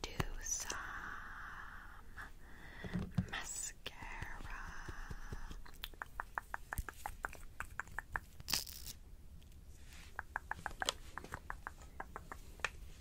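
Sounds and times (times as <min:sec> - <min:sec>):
soft hiss: 0:00.0 - 0:13.0.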